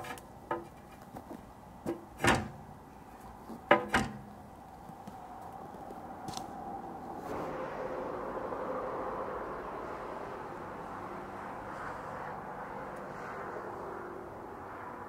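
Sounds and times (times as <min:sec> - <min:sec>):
low rushing noise: 0:04.2 - 0:15.0.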